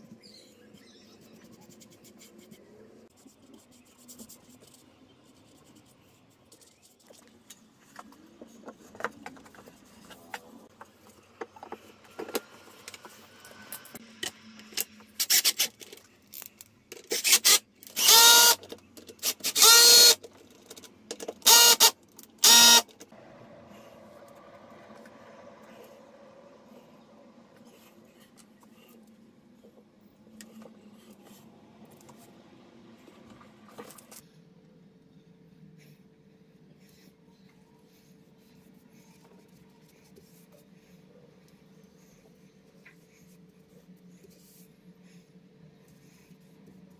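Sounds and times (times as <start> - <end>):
cordless drill driving screws: 17.2 - 18.6, 19.4 - 20.2, 21.4 - 22.8.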